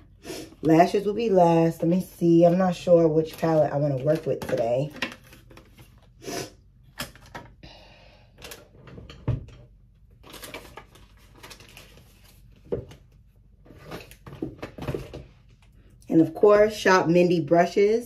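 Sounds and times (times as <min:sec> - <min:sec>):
makeup cases clicking and rustling: 0:03.3 - 0:06.0, 0:06.9 - 0:07.6.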